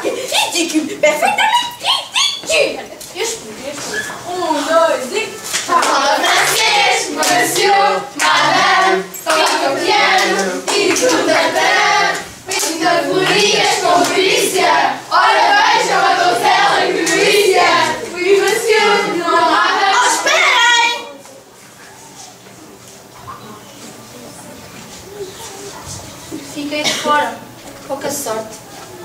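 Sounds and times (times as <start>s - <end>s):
young voices singing together: 4.2s - 21.2s, 26.8s - 27.0s
hand clapping: 5.5s - 14.4s.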